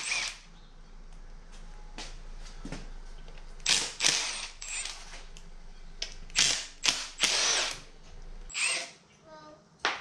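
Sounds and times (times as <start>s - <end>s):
impact driver bursts: 0.0s - 0.4s, 3.6s - 5.0s, 6.3s - 7.8s, 8.5s - 9.0s.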